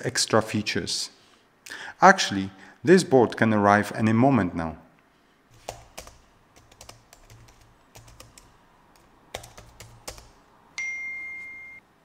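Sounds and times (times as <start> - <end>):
laptop keyboard typing: 5.5 - 10.4.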